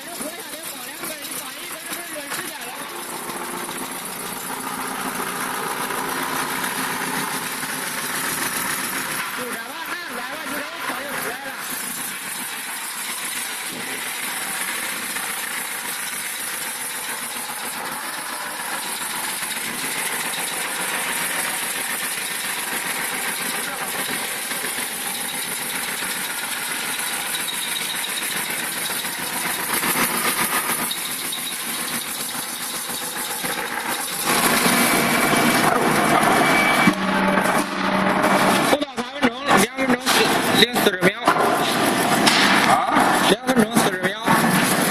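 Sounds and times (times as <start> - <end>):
wood shaving machine running: 0.0 - 44.9
high whine: 30.7 - 44.9.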